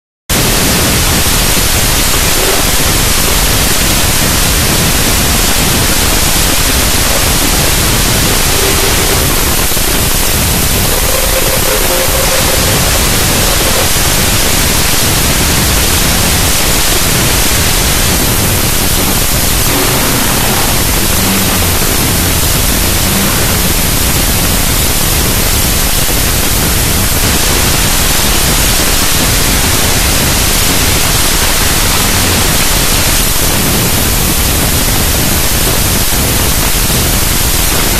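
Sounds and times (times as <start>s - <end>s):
loud static hiss: 0.3s - 37.9s.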